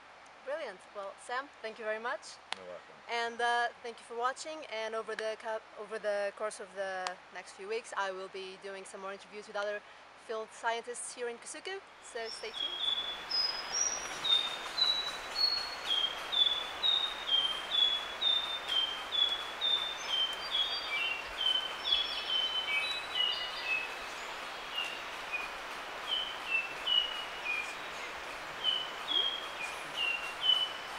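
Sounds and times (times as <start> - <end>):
bird singing whistled notes: 12.1 - 30.9.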